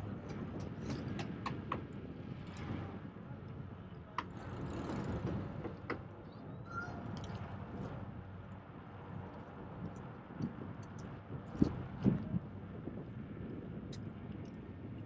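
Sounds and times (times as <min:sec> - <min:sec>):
bicycle tyres rumbling: 0:00.5 - 0:08.0.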